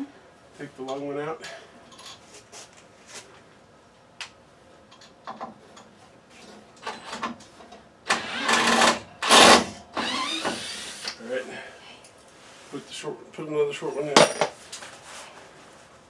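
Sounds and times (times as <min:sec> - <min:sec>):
cordless drill whirring: 0:08.1 - 0:11.2.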